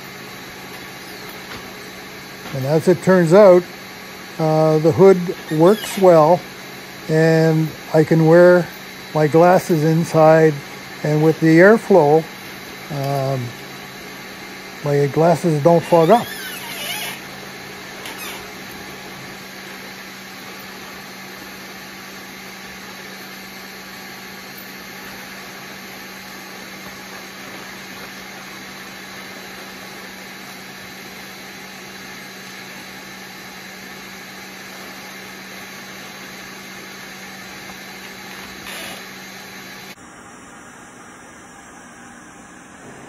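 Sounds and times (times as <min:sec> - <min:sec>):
respirator blower rushing air: 0:00.0 - 0:31.5.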